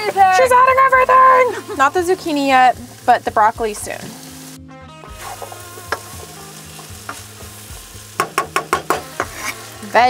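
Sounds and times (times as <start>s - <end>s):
vegetables sizzling in a frying pan: 0.0s - 10.0s
sharp knocks: 8.2s - 9.3s.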